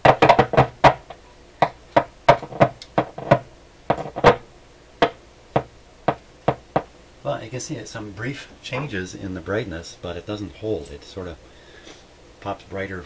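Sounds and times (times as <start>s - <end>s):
radio speaker popping and crackling: 0.0s - 4.4s.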